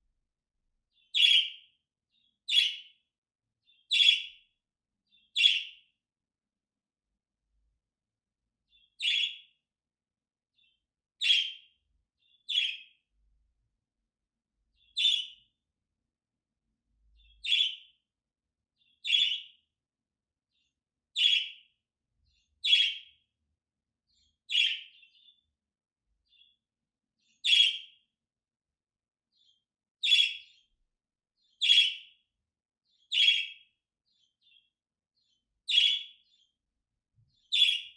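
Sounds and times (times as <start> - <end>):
budgerigar chirping: 1.1 - 1.6, 2.5 - 2.9, 3.9 - 4.4, 5.4 - 5.8, 9.0 - 9.5, 11.2 - 11.7, 12.5 - 12.9, 14.9 - 15.4, 17.4 - 17.9, 19.0 - 19.6, 21.2 - 21.6, 22.6 - 23.1, 24.5 - 25.3, 27.4 - 28.0, 30.0 - 30.5, 31.6 - 32.1, 33.1 - 33.6, 35.7 - 36.2, 37.5 - 37.9.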